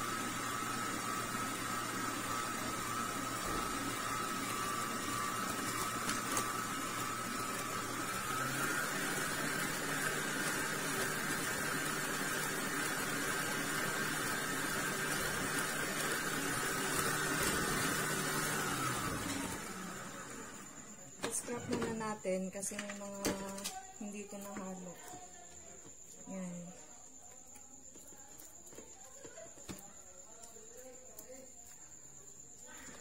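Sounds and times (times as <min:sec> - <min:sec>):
stand mixer motor humming: 0:00.0 - 0:21.9.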